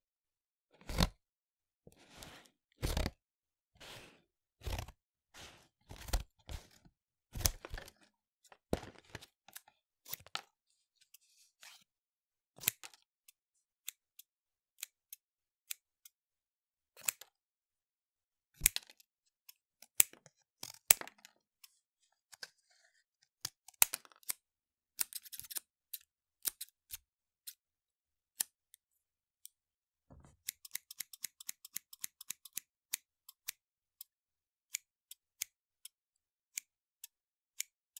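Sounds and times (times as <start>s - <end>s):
scissors snipping: 17.0s - 17.3s, 25.0s - 27.6s, 30.4s - 34.1s.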